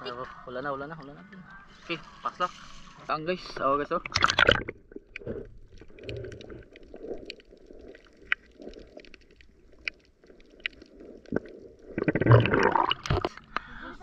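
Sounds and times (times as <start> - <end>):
muffled underwater water rumble: 3.9 - 13.6
sharp underwater clicks: 4.0 - 13.7.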